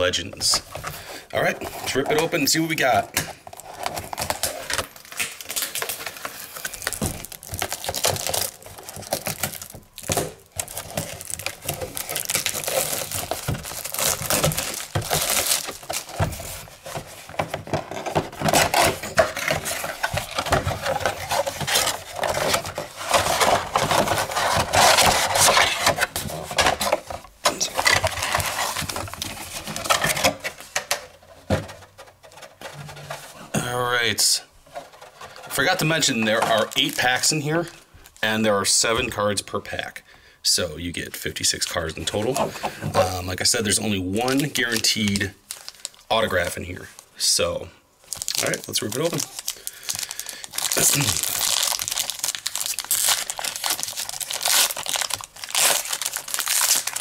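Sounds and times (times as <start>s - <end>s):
plastic shrink-wrap crinkling: 3.4s - 30.8s, 34.7s - 38.3s, 43.5s - 47.1s, 48.0s - 57.0s.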